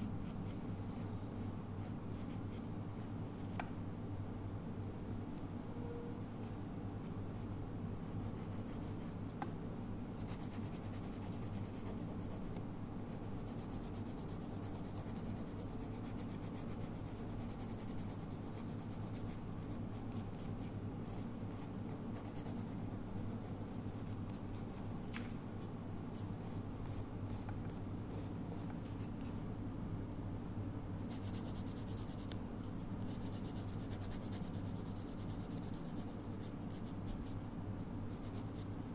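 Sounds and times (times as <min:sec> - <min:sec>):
steady low hum: 0:00.0 - 0:38.9
nail file rasping on fingernails: 0:10.2 - 0:24.8, 0:31.0 - 0:37.4.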